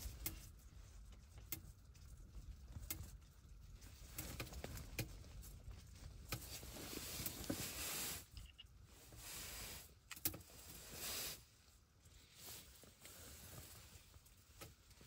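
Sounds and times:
tent fabric ticking in wind: 0.0s - 7.4s.

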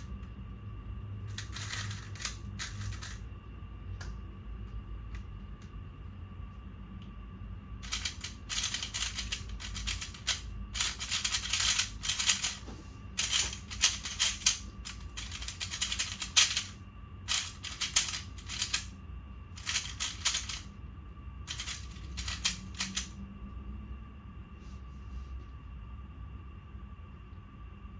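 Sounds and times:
puzzle cube clicking turns: 1.3s - 3.2s, 7.8s - 12.6s, 13.2s - 18.9s, 19.6s - 20.6s, 21.5s - 23.1s.

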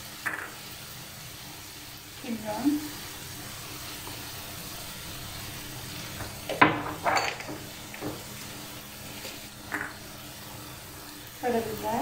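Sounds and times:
food sizzling in a pot: 0.0s - 12.0s
kitchenware clattering: 6.2s - 8.2s.

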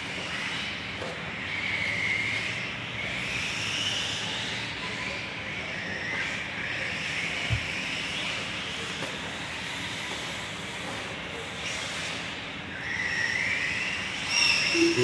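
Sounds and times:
rc car motor whine: 0.1s - 15.0s.

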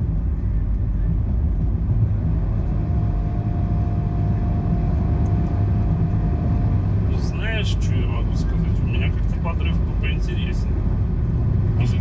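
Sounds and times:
road and drivetrain rumble: 0.0s - 12.0s
steady whine: 0.0s - 12.0s.

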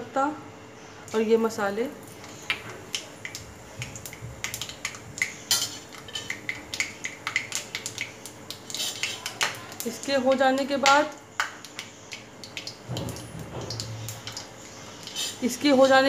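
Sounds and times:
spices crackling in hot oil: 1.1s - 16.0s.

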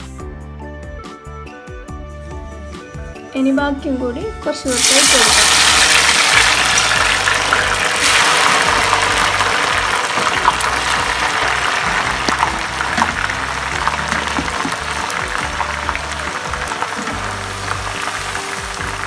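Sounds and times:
deep-frying sizzle and crackle: 4.7s - 19.0s.

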